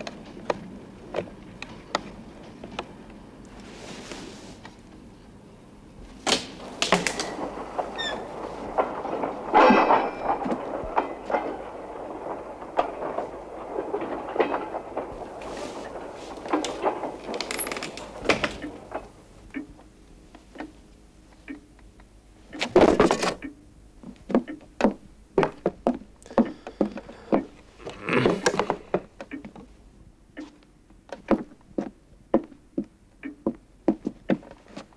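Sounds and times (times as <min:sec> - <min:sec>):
clatter of knocks and clinks: 0:06.8 - 0:19.0.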